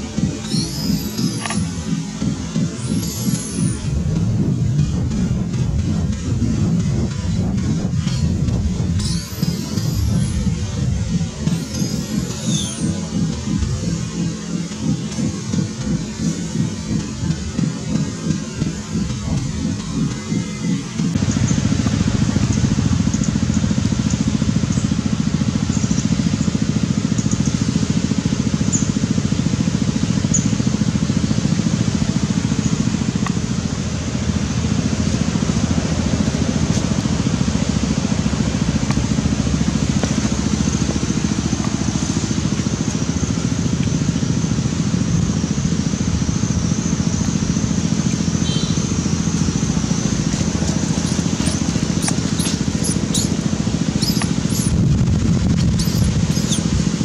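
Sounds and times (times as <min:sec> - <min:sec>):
wavering high trill: 0:00.0 - 0:21.7, 0:48.2 - 0:57.0
low rumble: 0:00.0 - 0:24.6, 0:33.0 - 0:57.0
thin high chirps: 0:00.4 - 0:01.7, 0:09.0 - 0:10.4, 0:11.5 - 0:13.0, 0:50.9 - 0:53.4, 0:54.0 - 0:54.8, 0:55.7 - 0:56.7.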